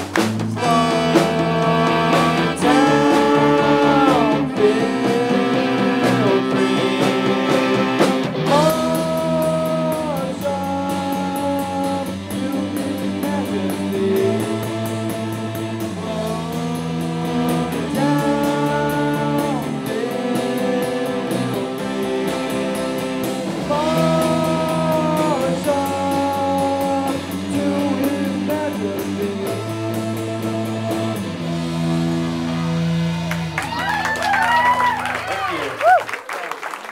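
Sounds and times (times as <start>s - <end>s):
bass guitar: 0.0s - 36.0s
electric guitar: 0.0s - 36.0s
man singing: 0.5s - 31.6s.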